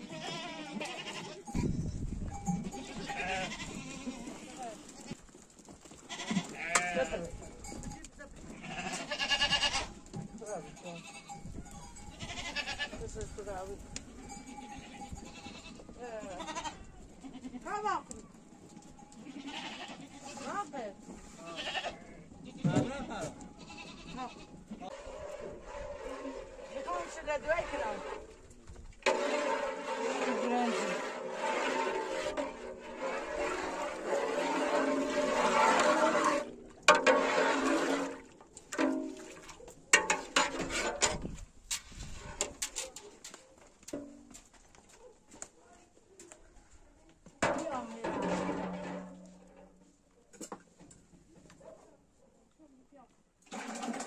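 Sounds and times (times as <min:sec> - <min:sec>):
goats bleating: 0:00.0 - 0:01.7, 0:02.6 - 0:05.3, 0:06.0 - 0:07.4, 0:08.4 - 0:10.0, 0:12.0 - 0:13.0, 0:14.2 - 0:17.9, 0:19.2 - 0:20.6, 0:21.3 - 0:24.9.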